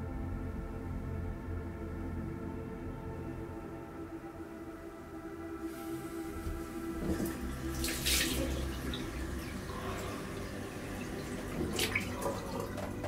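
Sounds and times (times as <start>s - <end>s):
soft steady music: 0.0s - 13.0s
tap running into sink: 6.4s - 9.2s
hands splashing water: 6.8s - 13.0s.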